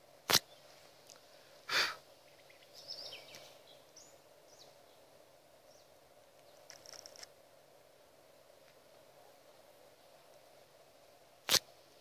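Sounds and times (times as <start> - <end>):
short breathy rush of noise: 0.8 - 2.1.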